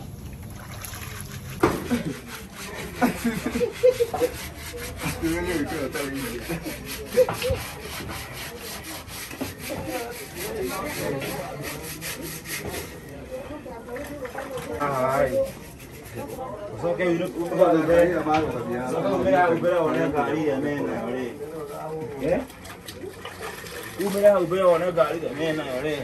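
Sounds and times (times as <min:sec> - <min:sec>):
blade scraping bone: 0:02.0 - 0:13.0, 0:15.1 - 0:16.4.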